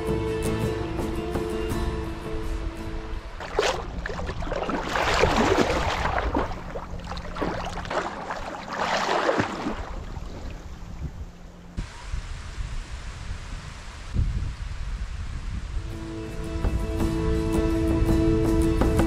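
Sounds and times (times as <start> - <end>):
seawater sloshing and splashing: 3.4 - 11.4.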